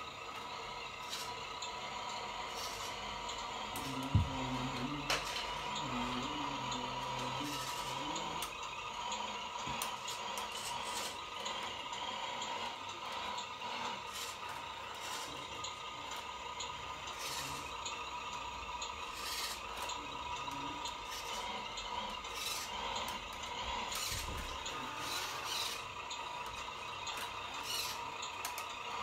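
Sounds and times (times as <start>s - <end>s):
model truck mechanical running: 0.0s - 29.0s.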